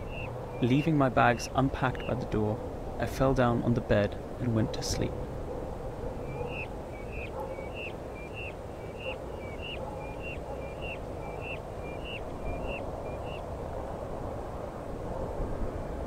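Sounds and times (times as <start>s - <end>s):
bird whistling call: 0.0s - 2.2s, 6.2s - 13.4s
low rumble of ambience: 0.0s - 13.3s.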